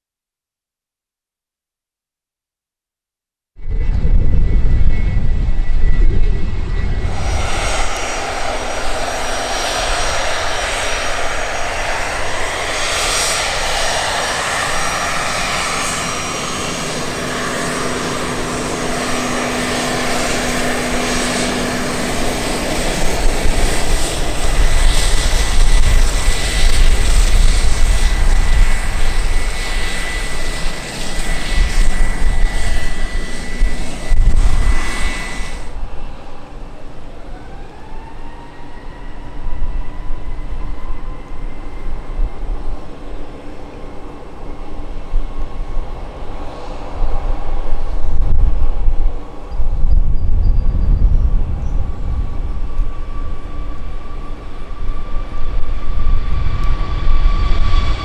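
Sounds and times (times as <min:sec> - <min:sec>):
jet engine rumble: 0:03.6 - 0:58.0
jet engine whine: 0:03.6 - 0:58.0.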